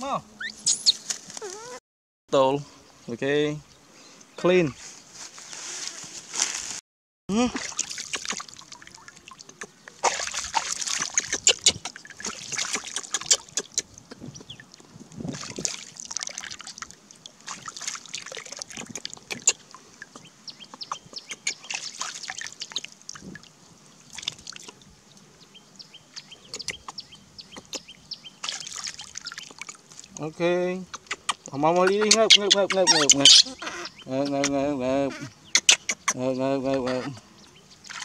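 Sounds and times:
hands splashing water: 7.4 - 13.8, 15.3 - 19.7, 21.4 - 23.4, 24.1 - 24.8, 28.4 - 30.2
water trickling: 7.5 - 25.3, 27.8 - 30.2.

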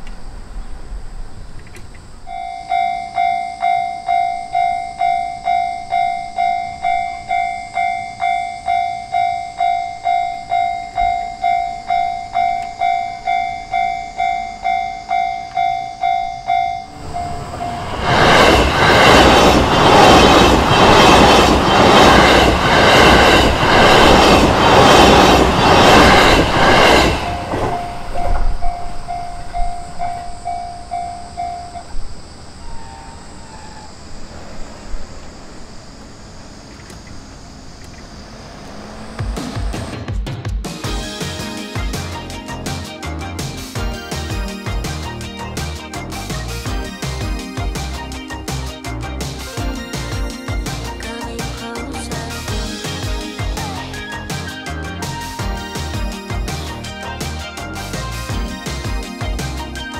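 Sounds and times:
level-crossing warning bell ringing: 2.2 - 34.6.

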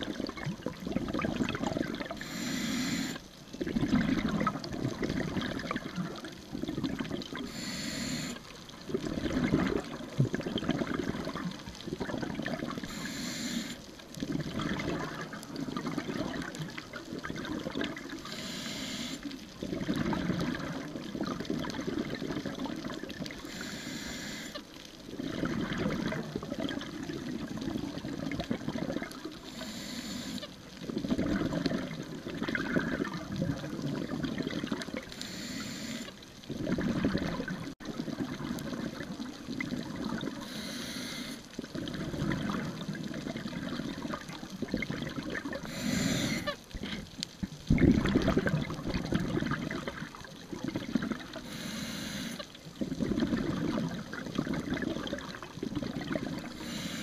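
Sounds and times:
gurgling exhaust bubbles: 0.0 - 2.2, 3.6 - 7.5, 8.8 - 12.8, 14.2 - 18.1, 19.6 - 23.3, 25.2 - 29.5, 30.8 - 35.1, 36.5 - 40.4, 41.7 - 45.8, 47.6 - 51.4, 52.7 - 56.6
regulator inhale hiss: 2.2 - 3.2, 7.4 - 8.6, 12.8 - 13.9, 18.2 - 19.3, 23.4 - 24.6, 29.4 - 30.6, 35.2 - 36.2, 40.4 - 41.5, 45.6 - 47.0, 51.4 - 52.5, 56.6 - 57.0.

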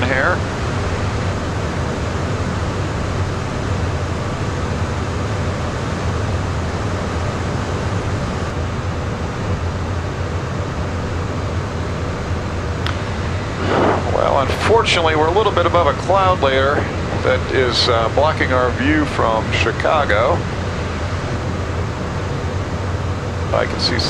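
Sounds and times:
low jet engine hum: 0.0 - 24.0
airflow rushing over fuselage: 12.1 - 24.0.

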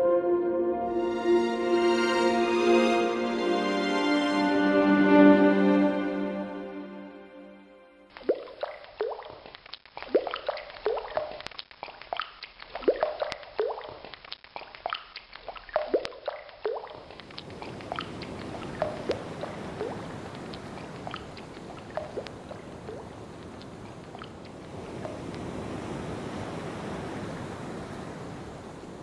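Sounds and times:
water drops plinking: 8.1 - 9.4, 10.0 - 14.0, 14.6 - 25.4
steady rushing surf-like noise: 24.7 - 29.0.

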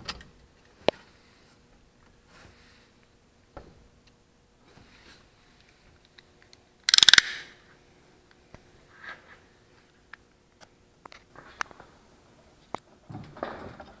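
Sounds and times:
rattle of rapid clicks: 6.9 - 7.4.

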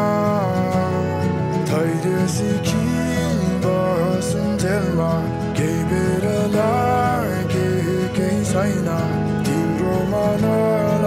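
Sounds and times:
melodic song: 0.0 - 11.0.

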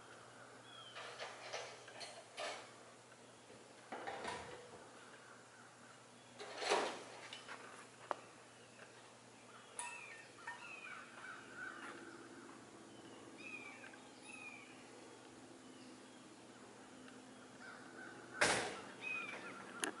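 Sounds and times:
crows cawing: 10.3 - 12.6, 17.6 - 20.0.

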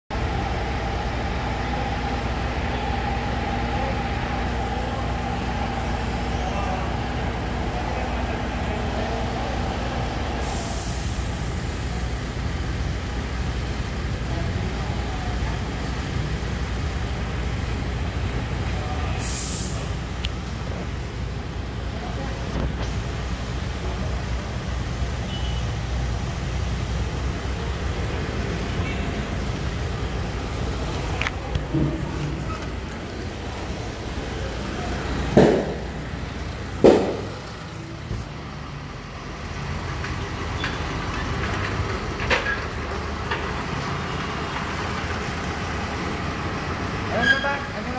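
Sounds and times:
compressed air hiss: 10.4 - 12.1, 19.2 - 20.0.

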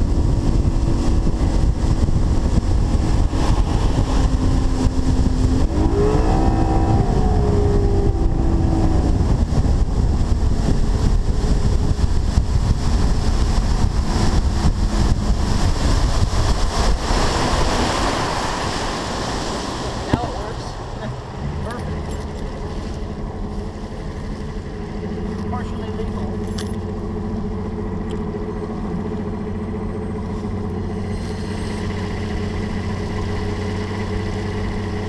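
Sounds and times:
wind rush over microphone: 0.0 - 25.6
outboard motor running: 0.0 - 35.0.

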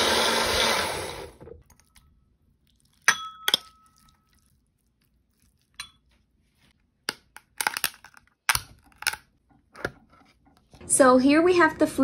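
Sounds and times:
ceramic bowl clinking: 3.0 - 4.4.

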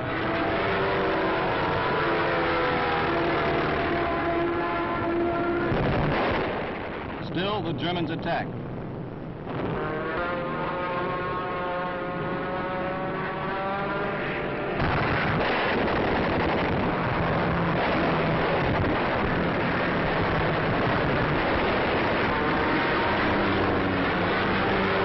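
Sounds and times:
rough engine roar: 0.0 - 25.0
aircraft engines droning: 6.4 - 9.6.

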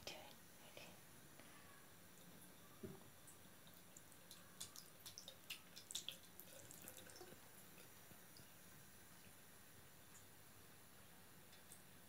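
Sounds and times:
small splashes and drips: 3.2 - 8.6.

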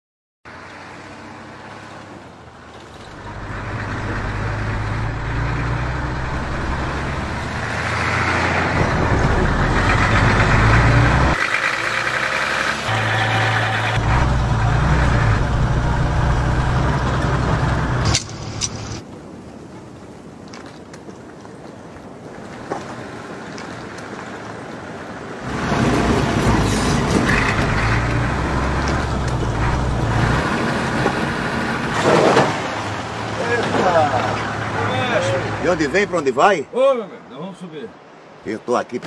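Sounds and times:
vehicle engine running: 3.2 - 19.0, 25.5 - 31.9.

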